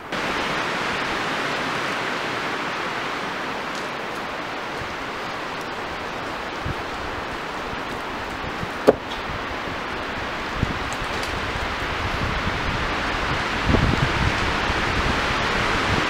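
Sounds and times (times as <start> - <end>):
steady outdoor hiss: 0.0 - 16.0
wooden pole knocking on frame: 8.8 - 9.1.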